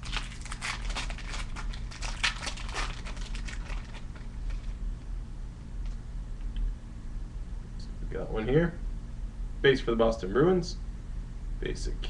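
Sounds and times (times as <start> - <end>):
foil wrapper crinkling and tearing: 0.0 - 4.8.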